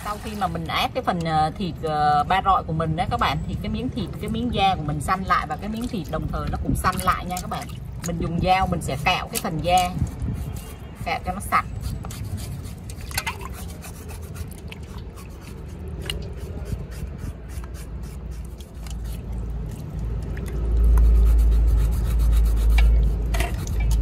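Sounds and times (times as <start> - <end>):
knife scraping pork skin: 9.2 - 19.4.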